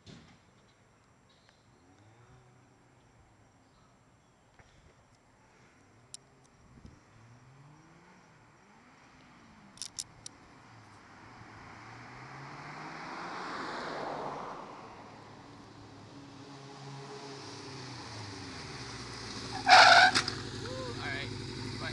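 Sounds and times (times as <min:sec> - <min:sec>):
motorcycle engine revving: 0:06.8 - 0:13.4, 0:15.6 - 0:21.9.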